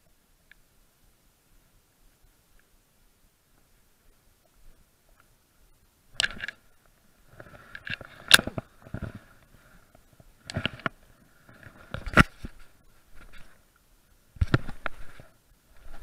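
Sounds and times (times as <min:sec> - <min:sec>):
fly line rustling and scraping: 0:07.2 - 0:13.6, 0:14.4 - 0:16.0.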